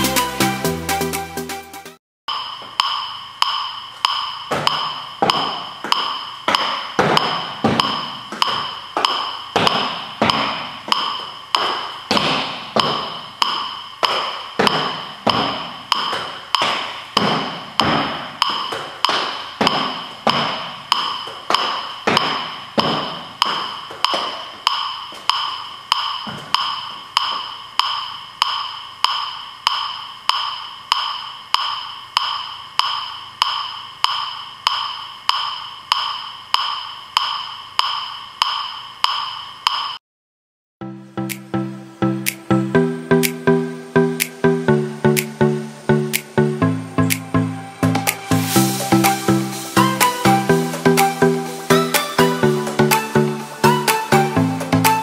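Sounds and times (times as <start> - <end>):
feet thudding on step platform: 4.5 - 25.4, 26.2 - 27.5
metronome ticking: 41.2 - 47.2, 48.0 - 55.0.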